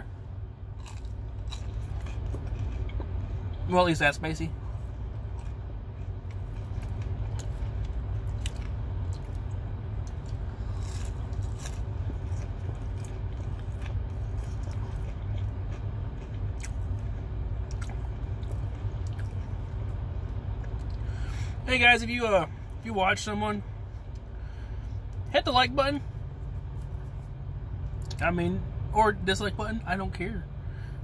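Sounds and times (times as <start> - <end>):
low rumble: 0.0 - 31.0
chewing crispy food: 0.7 - 21.2.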